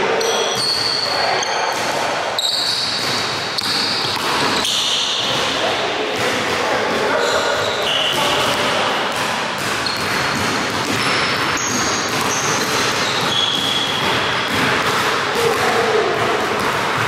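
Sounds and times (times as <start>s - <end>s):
sneaker squeaks: 0.2s - 5.6s, 6.9s - 8.9s, 9.6s - 14.6s
basketball bouncing on wooden floor: 8.2s - 17.0s.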